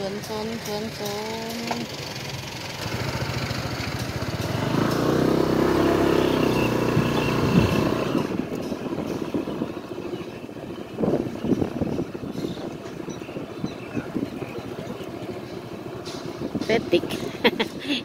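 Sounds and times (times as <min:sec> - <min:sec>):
motorcycle engine passing: 0:01.8 - 0:12.2.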